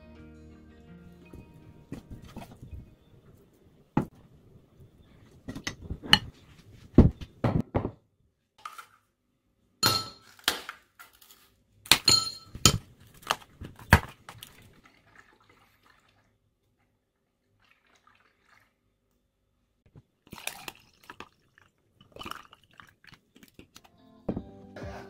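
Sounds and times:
juice pouring over ice: 20.2s - 23.6s.

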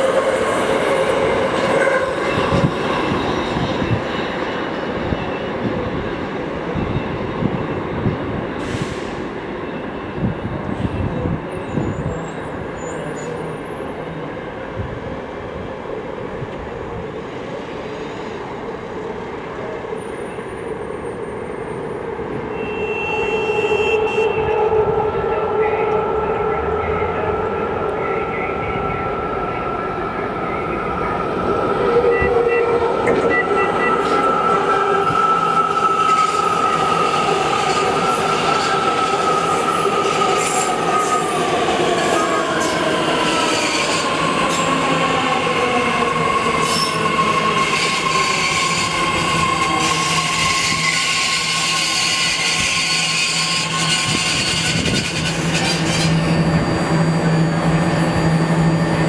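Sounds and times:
train wheels squealing: 0.0s - 14.3s, 31.9s - 59.0s
train cars rumbling: 23.1s - 59.0s.

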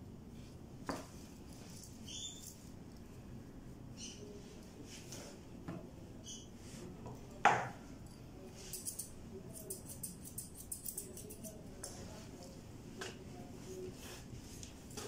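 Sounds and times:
scissors snipping fur: 8.7s - 11.6s.

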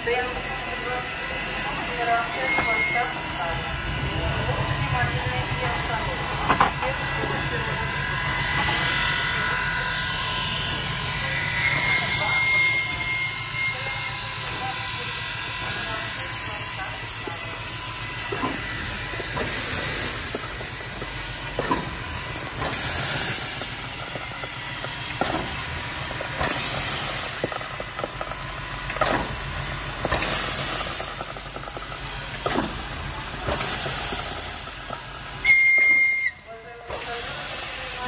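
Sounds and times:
steam locomotive hissing: 0.0s - 38.0s
high steam whistle: 2.0s - 3.4s, 9.3s - 16.9s, 35.4s - 38.0s
steam engine knock and puff: 18.3s - 36.0s.

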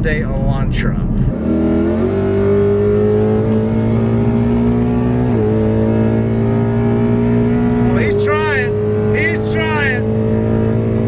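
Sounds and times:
car engine heard from cabin: 0.0s - 11.0s.

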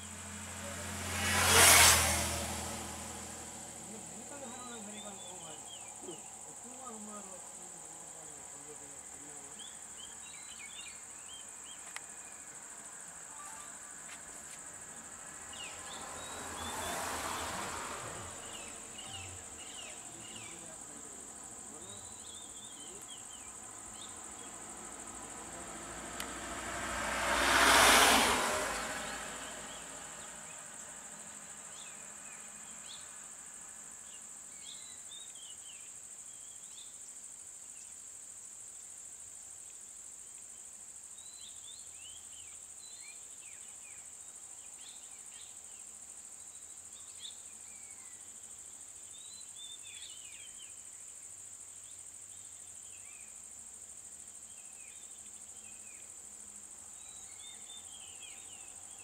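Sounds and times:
vehicle passing: 0.0s - 7.0s, 12.5s - 22.4s, 23.5s - 34.0s
insects droning: 0.0s - 59.0s
bird chirps: 13.3s - 13.8s.

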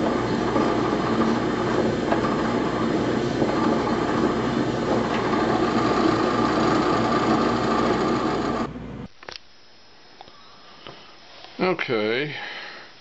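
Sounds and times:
power drill drilling: 0.0s - 8.7s.

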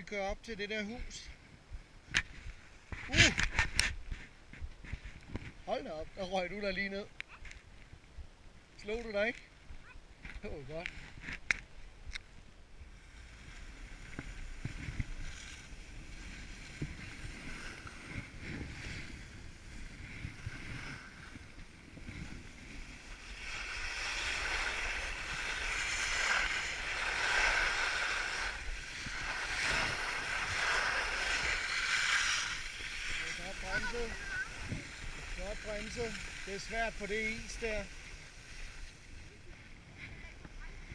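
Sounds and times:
skis scraping on icy snow: 12.8s - 40.9s
wind on microphone: 12.8s - 40.9s.

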